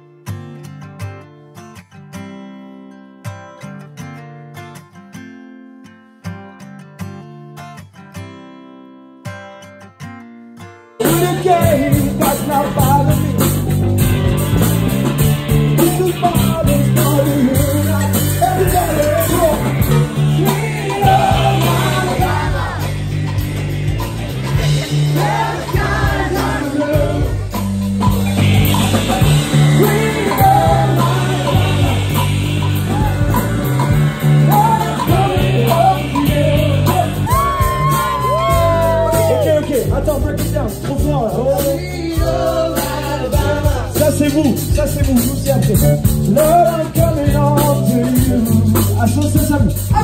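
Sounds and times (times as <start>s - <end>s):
quiet guitar music: 0.0s - 37.4s
person singing: 11.0s - 13.7s, 15.6s - 23.4s, 24.6s - 27.6s, 28.4s - 39.7s, 41.4s - 49.2s
rock band playing loudly: 11.0s - 50.0s.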